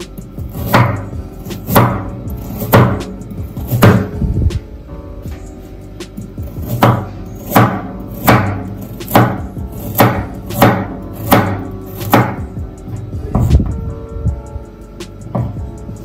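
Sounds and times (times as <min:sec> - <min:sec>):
knife chopping carrot on board: 0:00.5 - 0:04.2, 0:06.6 - 0:12.5.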